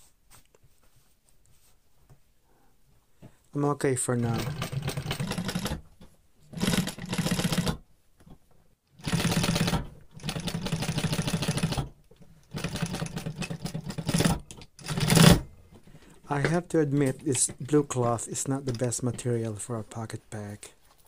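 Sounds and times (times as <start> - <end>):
sewing machine stitching: 4.2 - 7.8, 9.0 - 15.5.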